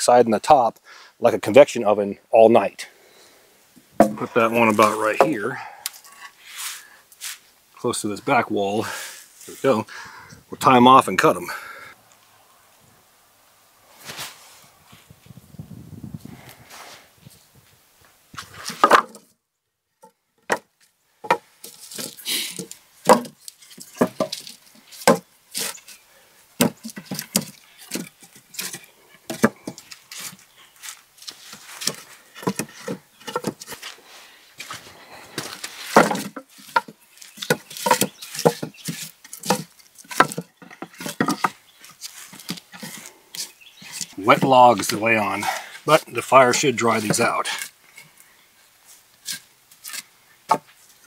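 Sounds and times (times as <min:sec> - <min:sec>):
wooden logs knocking: 0:04.0 - 0:05.6, 0:18.4 - 0:19.3, 0:20.0 - 0:25.8, 0:26.6 - 0:30.4, 0:31.8 - 0:33.8, 0:34.6 - 0:47.6, 0:50.5 - 0:50.8.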